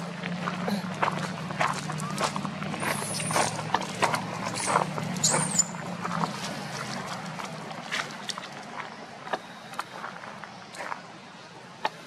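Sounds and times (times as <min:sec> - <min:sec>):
clicks and scuffs on gravel and leaves: 0:00.4 - 0:11.1
baby monkey squealing: 0:04.5 - 0:05.8.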